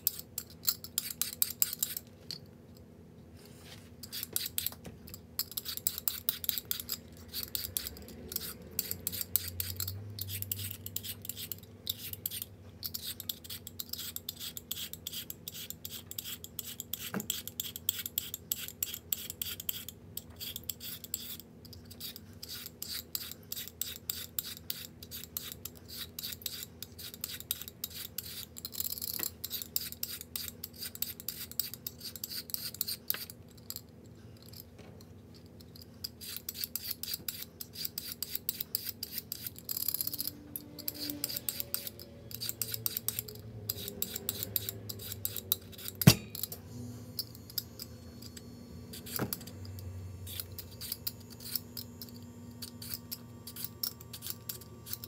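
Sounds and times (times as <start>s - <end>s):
carrot being grated: 5.4s - 28.7s, 36.1s - 40.2s, 40.8s - 46.0s.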